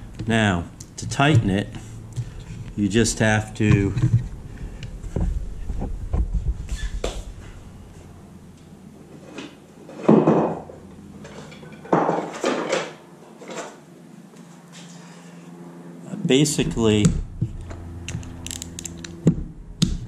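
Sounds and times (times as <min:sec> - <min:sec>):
objects clattering when moved: 0:09.1 - 0:13.8.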